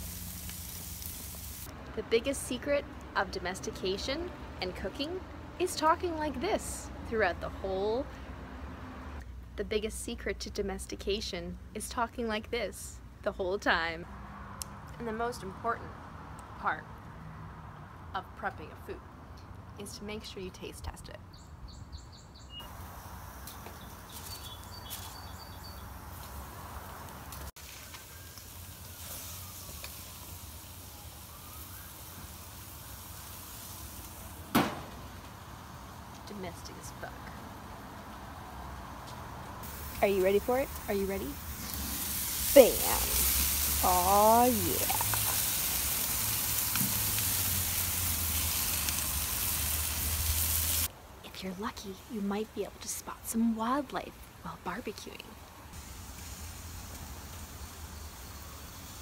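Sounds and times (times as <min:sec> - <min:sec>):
meat sizzling on a grill: 0:00.0 - 0:01.7, 0:22.7 - 0:36.1, 0:39.6 - 0:50.9, 0:55.8 - 0:59.0
small birds chirping: 0:21.2 - 0:22.7, 0:23.3 - 0:26.4.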